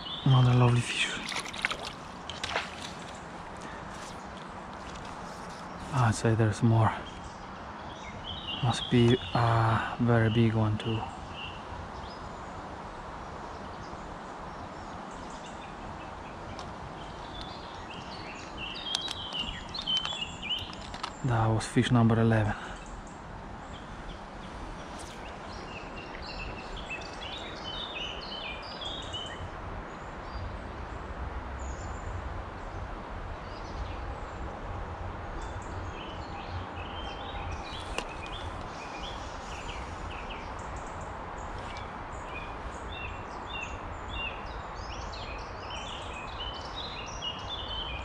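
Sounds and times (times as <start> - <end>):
small birds chirping: 0.0 - 30.6, 35.3 - 48.0
outdoor background hiss: 0.0 - 48.0.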